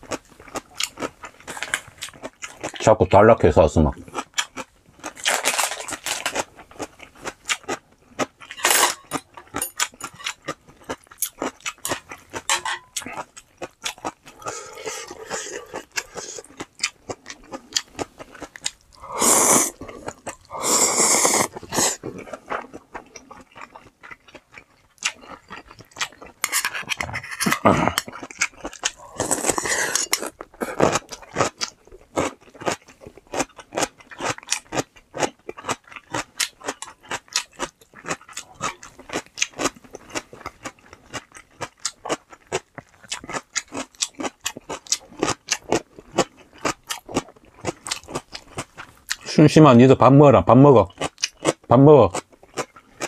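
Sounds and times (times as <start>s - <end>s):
crunching and chewing: 0.0s - 2.9s, 4.0s - 49.4s, 50.7s - 53.0s
slurping noodles: 14.3s - 16.6s, 19.0s - 22.5s, 28.8s - 31.2s.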